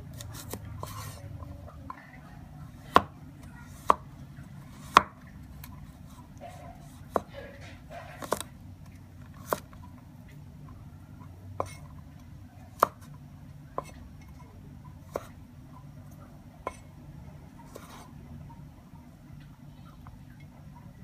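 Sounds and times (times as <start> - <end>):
cleaver chopping on wooden board: 4.9 - 5.2.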